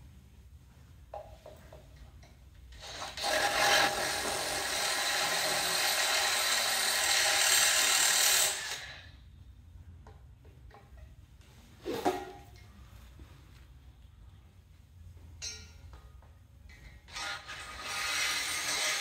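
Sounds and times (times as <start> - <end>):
power tool running: 2.8 - 9.1, 17.1 - 19.0.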